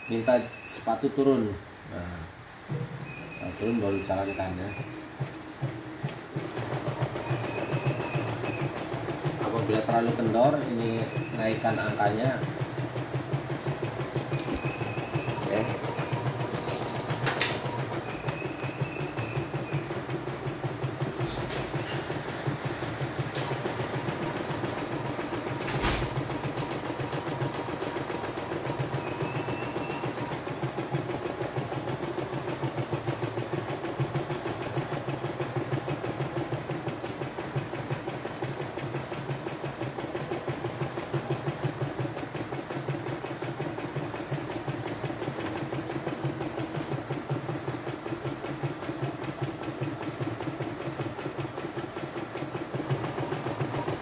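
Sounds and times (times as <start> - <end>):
embroidery machine needle chatter: 6.3 - 22.1, 23.1 - 32.1.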